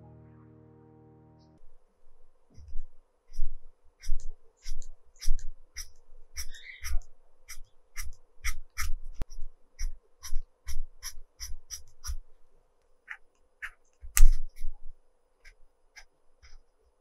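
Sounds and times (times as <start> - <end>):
pencil strokes on paper: 1.6 - 12.4.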